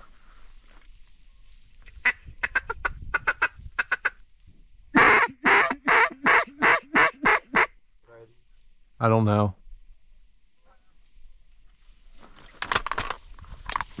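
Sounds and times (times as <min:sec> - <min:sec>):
duck call quacks: 0:02.0 - 0:04.2, 0:05.0 - 0:07.7.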